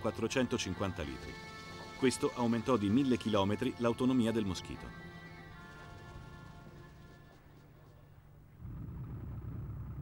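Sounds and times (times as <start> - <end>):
faint background music: 0.0 - 8.6.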